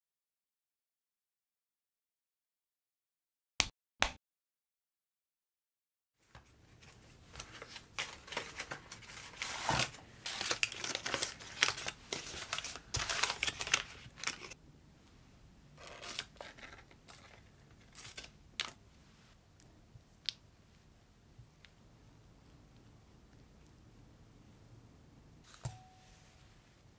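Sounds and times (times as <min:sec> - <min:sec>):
paper wrapper crinkling: 0:06.7 - 0:14.6, 0:15.8 - 0:18.8.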